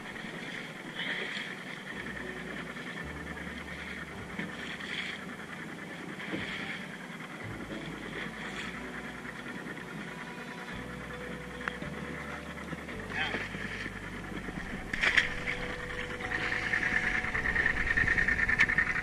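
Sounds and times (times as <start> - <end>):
water rushing and splashing past hull: 0.0 - 19.0
wind buffeting microphone: 13.6 - 19.0.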